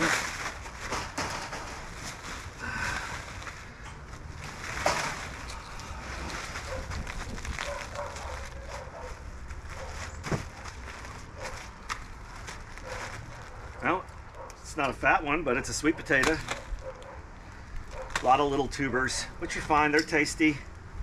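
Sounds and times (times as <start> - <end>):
bag and tarp rustling: 0.0 - 14.0.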